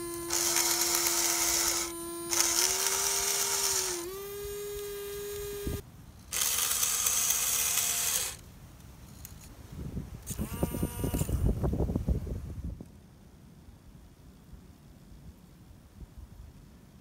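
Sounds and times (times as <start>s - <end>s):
water pump whine: 0.0s - 5.8s
harsh gear whirr: 0.0s - 8.4s, 10.3s - 11.5s.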